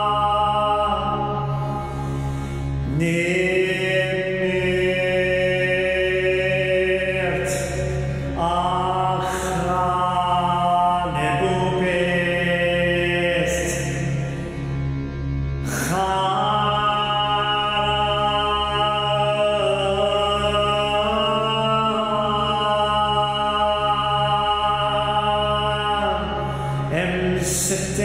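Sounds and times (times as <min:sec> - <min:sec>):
man chanting: 0:00.0 - 0:15.0, 0:15.6 - 0:28.0
steady low drone: 0:00.0 - 0:28.0.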